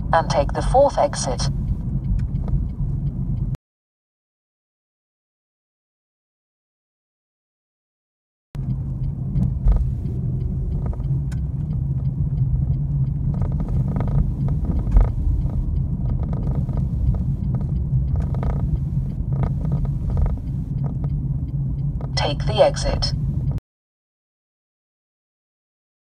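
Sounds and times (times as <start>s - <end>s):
car road and engine rumble: 0.0s - 3.6s, 8.6s - 23.6s
faint regular ticks: 8.6s - 22.2s.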